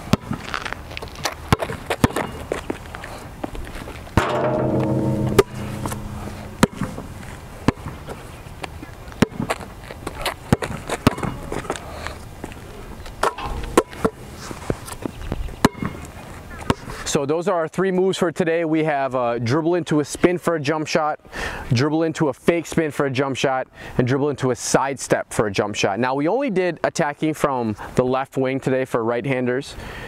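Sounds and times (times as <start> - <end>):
basketball bouncing on asphalt: 0.1 - 0.5, 1.5 - 2.7, 9.2 - 9.6.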